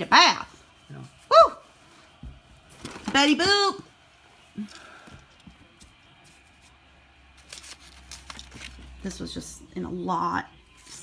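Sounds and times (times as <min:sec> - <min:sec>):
soft rustle of handling: 0:04.4 - 0:09.1.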